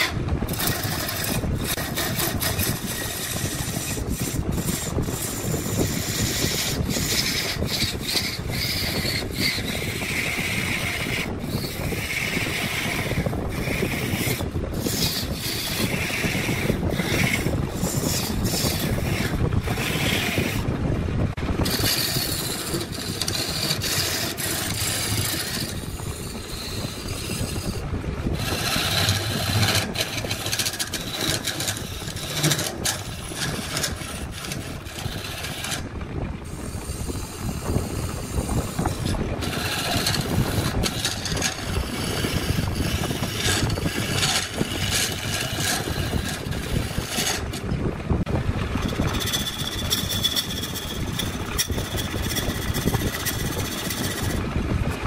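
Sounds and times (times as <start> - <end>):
tool rasping against wood: 0.0 - 20.7, 21.6 - 35.9, 36.5 - 47.8, 48.8 - 54.4
machine running: 21.4 - 35.8.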